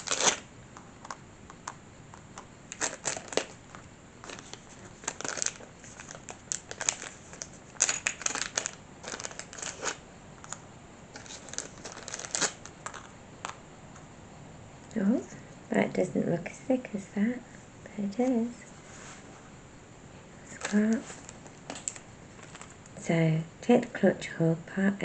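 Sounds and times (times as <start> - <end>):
plastic bags crinkling: 0.0 - 0.5, 2.7 - 13.2, 20.5 - 22.9.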